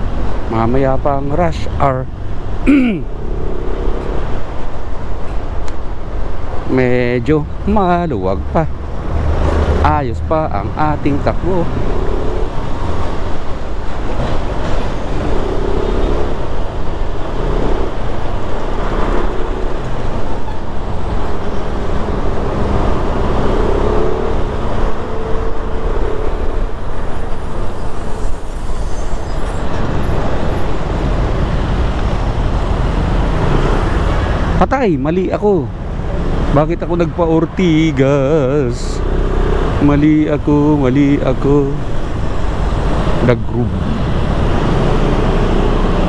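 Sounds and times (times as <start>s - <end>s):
other vehicles passing: 0.0s - 46.0s.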